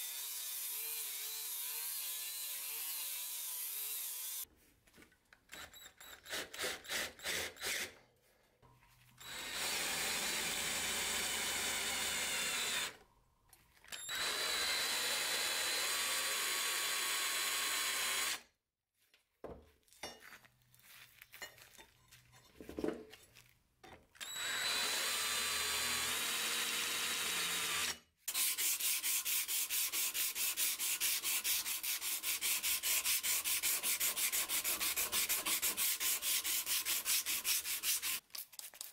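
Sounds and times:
cordless drill on steel blade: 0:00.0 - 0:04.5, 0:05.5 - 0:08.0, 0:09.2 - 0:13.0, 0:13.8 - 0:18.5, 0:24.2 - 0:29.0
hand sanding a blade: 0:28.3 - 0:38.9.

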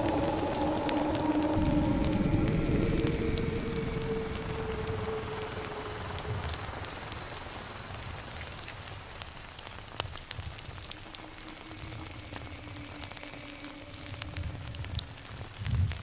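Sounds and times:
crackling hiss: 0:00.0 - 0:16.0
low rumble: 0:00.0 - 0:16.0.

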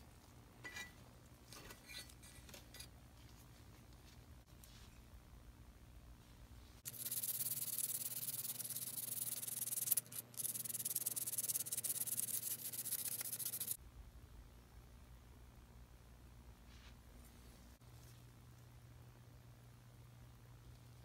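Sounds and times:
abrasive paper rubbing pipe: 0:06.9 - 0:13.8.

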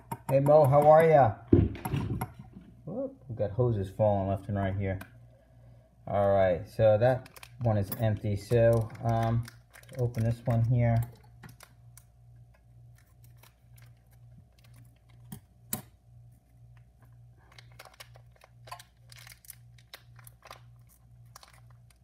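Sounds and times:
package crinkling and tapping: 0:07.2 - 0:07.8, 0:08.4 - 0:15.5, 0:16.7 - 0:22.0.

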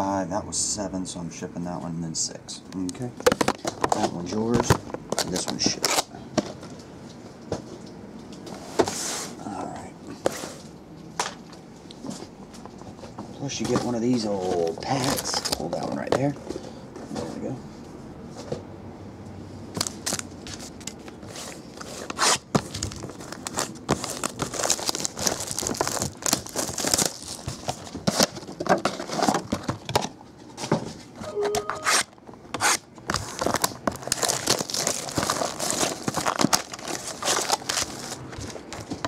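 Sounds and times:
plastic shrink-wrap tearing and crinkling: 0:04.0 - 0:06.1, 0:14.6 - 0:15.9, 0:19.8 - 0:20.9, 0:21.8 - 0:29.7, 0:31.9 - 0:38.7.

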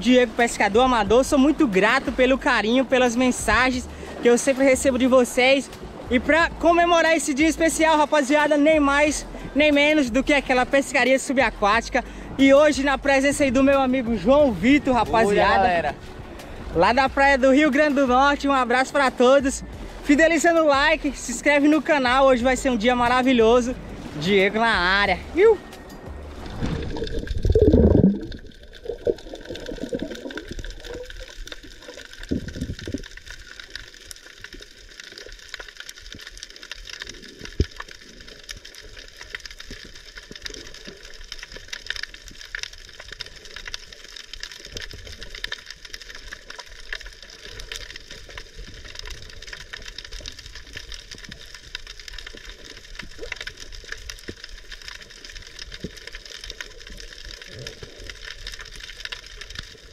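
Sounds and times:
water rushing: 0:00.0 - 0:59.9
underwater crackling hiss: 0:25.6 - 0:59.9.

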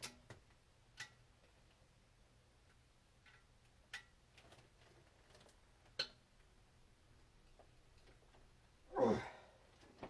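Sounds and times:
clicks of tools and metal parts: 0:00.0 - 0:01.2, 0:02.7 - 0:04.7.

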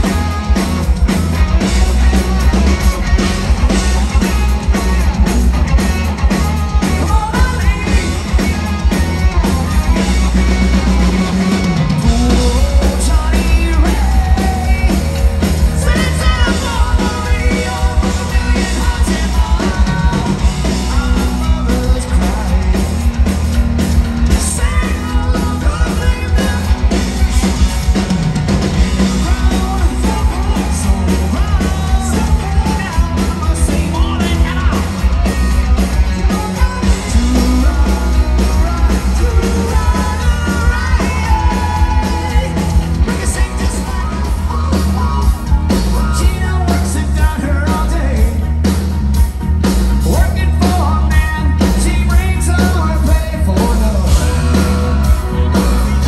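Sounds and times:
rock band playing: 0:00.0 - 0:56.0
person singing into microphone: 0:11.9 - 0:22.8, 0:29.0 - 0:48.4.

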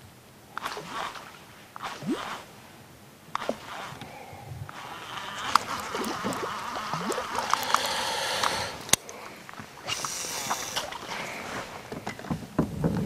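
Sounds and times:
water splashing and trickling: 0:04.7 - 0:12.0
rushing hiss of water: 0:04.8 - 0:09.0, 0:09.8 - 0:11.8.

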